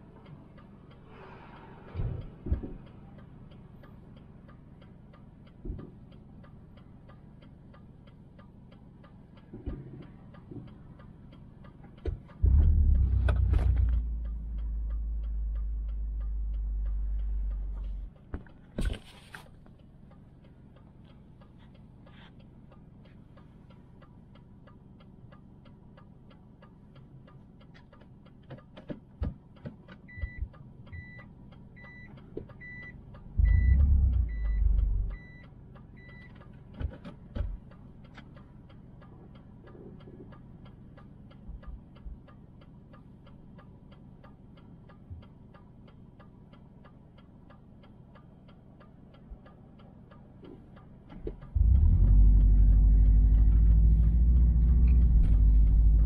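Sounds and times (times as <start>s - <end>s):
car cabin hum: 1.9s - 21.7s
fast faint ticking: 19.5s - 56.0s.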